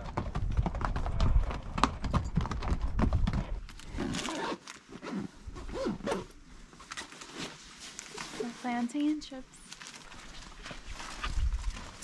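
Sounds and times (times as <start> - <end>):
hooves clopping on rocky trail: 0.0 - 4.3, 9.9 - 12.0
backpack rustling: 3.8 - 12.0.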